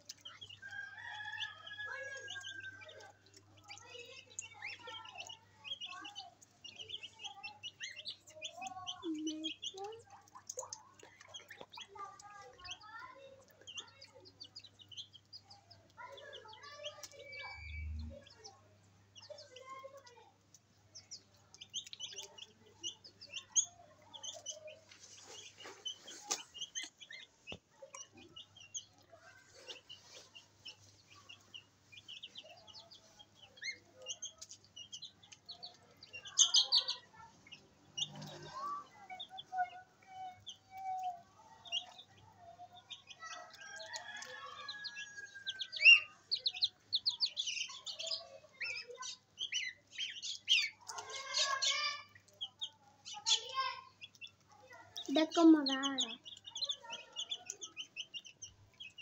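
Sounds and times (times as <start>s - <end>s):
goslings peeping: 0.0s - 11.9s, 42.8s - 54.3s.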